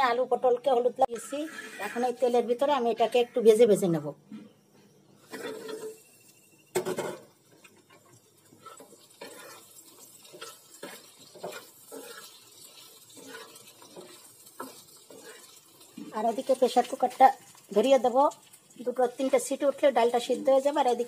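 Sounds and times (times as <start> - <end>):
metal spatula scraping a pan: 1.0 - 3.4, 5.2 - 6.2, 6.8 - 17.2
oil sizzling: 5.1 - 21.0.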